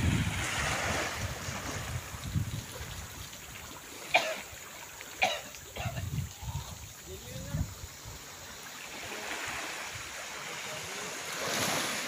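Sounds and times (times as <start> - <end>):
water lapping over rocks: 0.0 - 12.0.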